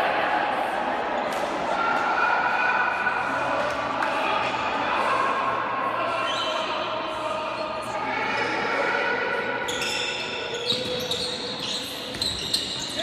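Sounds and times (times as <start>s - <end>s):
sneakers squeaking on floor: 9.6s - 13.0s.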